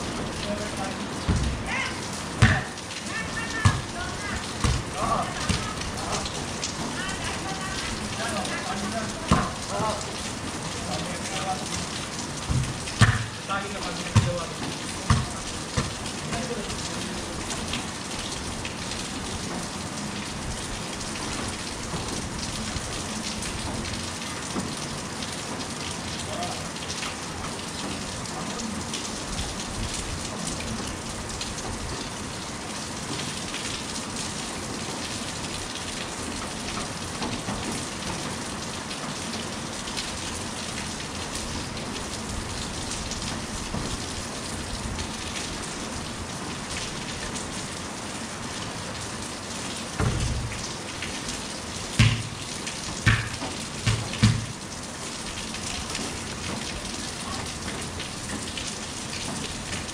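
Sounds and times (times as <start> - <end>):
rain on concrete: 0.0 - 59.9
dull thumps: 1.3 - 1.7, 2.4 - 2.7, 4.6 - 5.7, 12.5 - 13.4, 52.0 - 52.4, 53.0 - 54.5.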